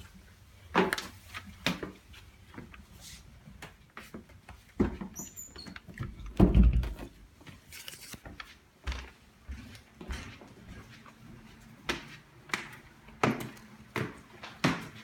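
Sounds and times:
footsteps: 7.4 - 15.0.

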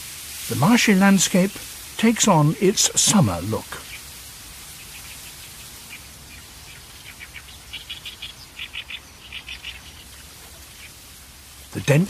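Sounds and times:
outdoor ambience hiss: 0.0 - 12.0
bird chirping rapidly: 3.5 - 11.0.

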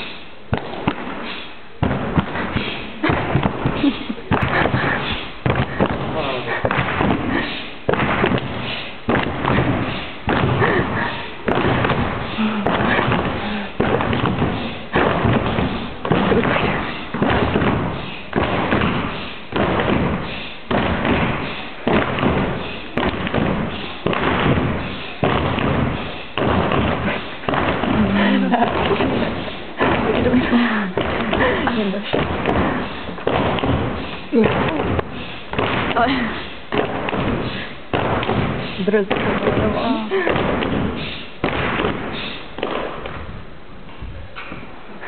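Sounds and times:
thumping beat in echoing hall: 0.0 - 43.3
voices: 27.8 - 33.1, 38.7 - 40.4.

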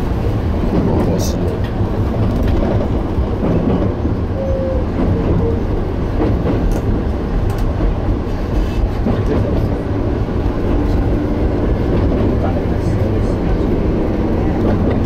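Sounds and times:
train wheels rumbling: 0.0 - 15.0
short tone: 4.4 - 4.8.

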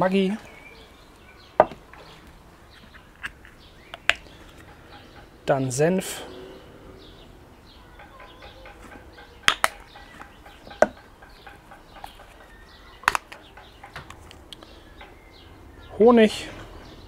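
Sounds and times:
faint bird calls: 0.4 - 17.0
utensils knocking against a bowl: 8.0 - 14.1.

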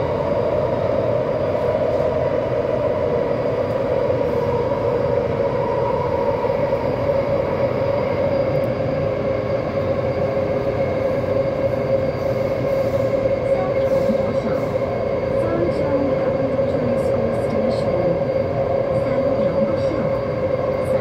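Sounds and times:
train ride rumble: 0.0 - 21.0.

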